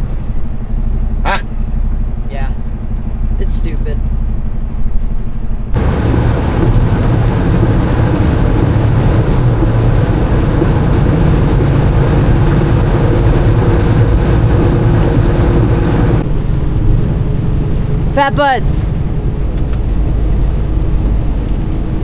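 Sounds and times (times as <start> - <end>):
truck engine drone: 0.0 - 22.0
tyre spray and rain hiss: 5.8 - 16.2.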